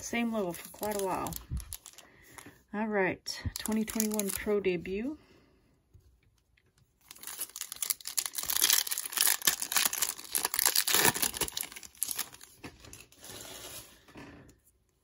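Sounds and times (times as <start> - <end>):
foil wrapper tearing and crinkling: 0.6 - 2.0, 3.6 - 4.5, 7.0 - 14.0.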